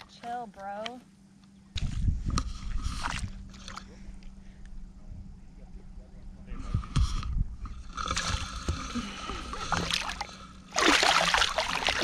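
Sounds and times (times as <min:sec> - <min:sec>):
fish thrashing and splashing: 0:09.6 - 0:12.0.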